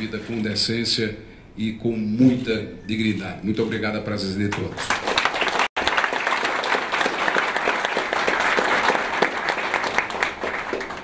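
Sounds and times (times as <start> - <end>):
audience applauding: 4.8 - 11.0.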